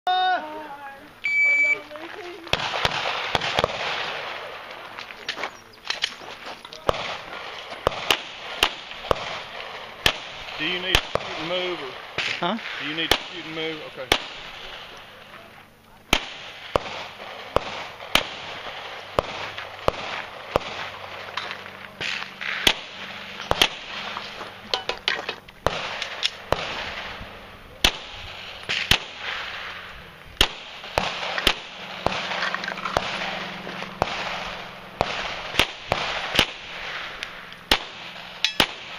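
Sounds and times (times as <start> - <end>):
handgun shots: 37.7 - 38.9.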